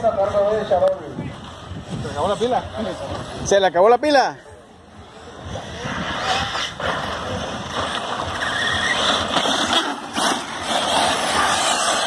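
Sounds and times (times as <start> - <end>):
rc cars rushing on dirt: 5.0 - 12.0.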